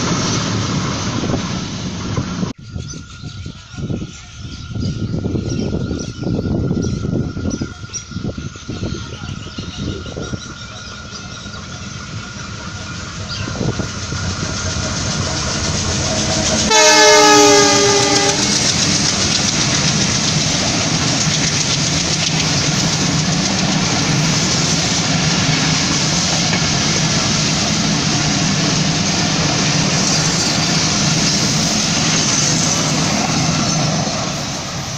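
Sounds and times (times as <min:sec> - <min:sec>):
diesel locomotive approaching: 0:00.0 - 0:34.9
coaches clattering over rails: 0:06.7 - 0:34.9
train horn: 0:16.4 - 0:18.8.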